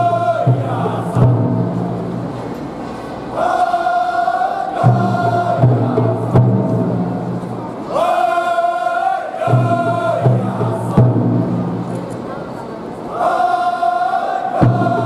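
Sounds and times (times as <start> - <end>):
men chanting low: 0.0 - 1.7, 3.3 - 7.0, 7.8 - 12.2, 13.0 - 15.0.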